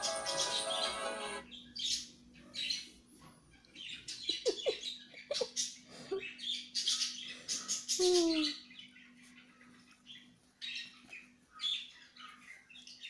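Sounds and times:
kittens squeaky chirps: 2.5 - 6.3, 7.0 - 8.7
kittens rustling and scratching fabric: 9.0 - 13.0.

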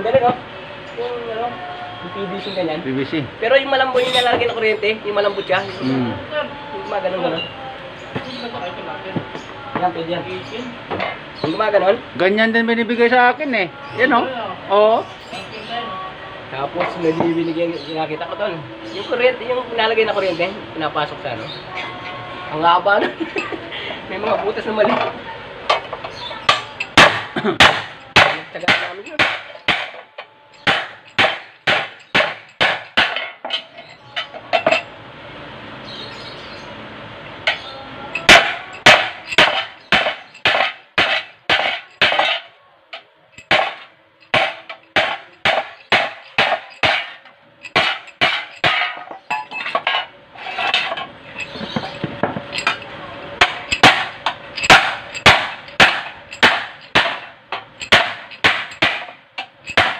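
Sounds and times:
hammer striking metal sheet: 26.5 - 30.0, 30.6 - 33.4, 38.2 - 42.5, 43.4 - 49.0, 53.4 - 59.9.

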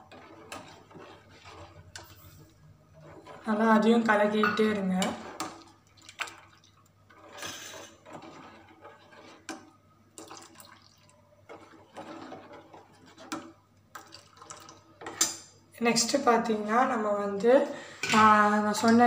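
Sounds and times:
milk splashing and dribbling: 5.4 - 6.9, 10.2 - 13.3, 13.9 - 15.0.

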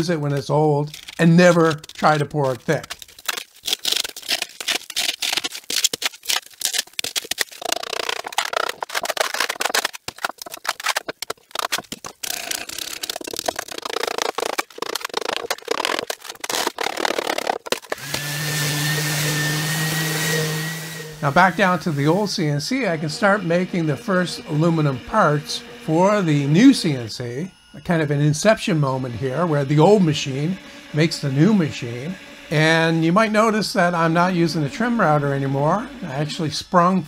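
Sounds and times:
crumbling resin pieces: 0.0 - 18.3
orbital sander running: 0.0 - 37.0.

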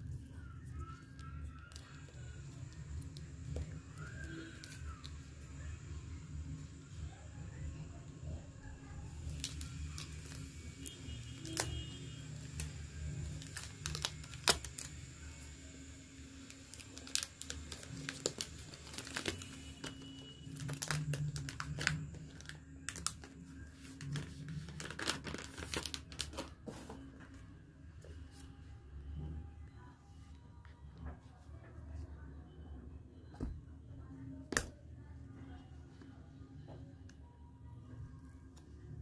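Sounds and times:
plastic wrap tearing and crackling: 1.2 - 5.2, 9.1 - 15.1, 16.4 - 26.5.

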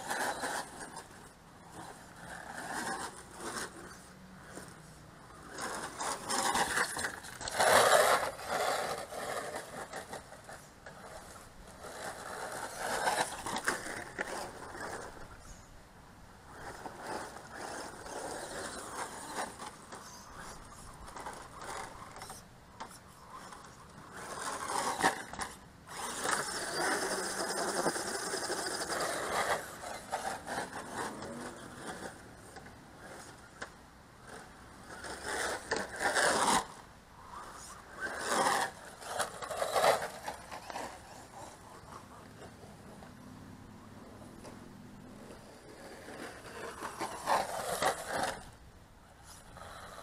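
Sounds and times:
tyres scrabbling on dirt: 0.0 - 15.6, 16.5 - 43.2, 44.0 - 48.6
toy truck motor whining: 23.4 - 33.7, 34.3 - 36.7, 37.3 - 42.5.

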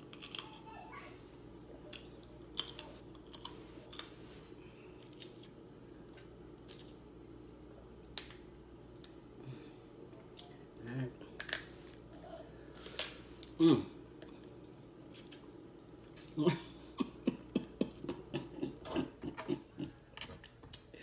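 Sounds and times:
faint steady hum: 0.0 - 21.0
crab shells cracking: 8.1 - 9.2, 11.4 - 12.1.

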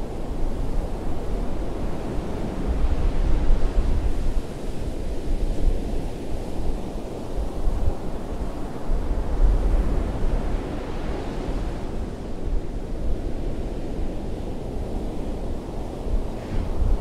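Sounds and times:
ocean surf breaking on beach: 13.5 - 17.0.

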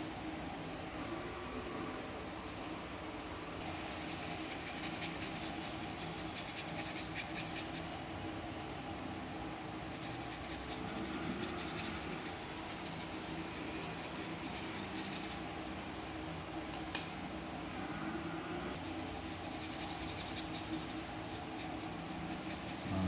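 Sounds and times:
low background hum: 0.0 - 23.0
paintbrush scratching cardboard: 3.6 - 8.0, 9.8 - 15.5, 18.8 - 23.0.

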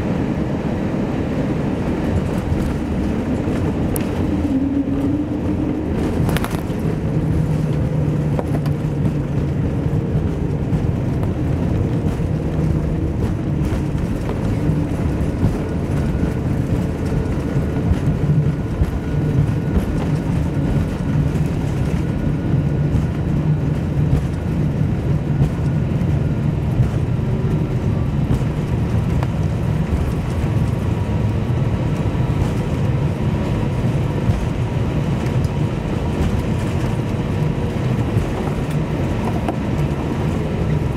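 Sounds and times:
jet engines idling rumble: 0.0 - 40.9.

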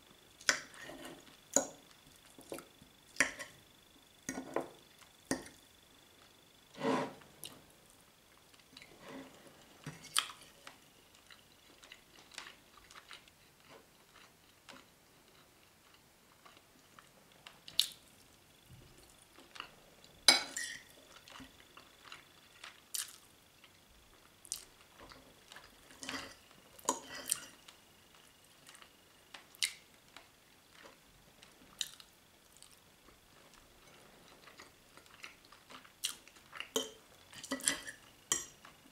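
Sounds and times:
chewing: 8.3 - 18.0, 18.9 - 38.8.

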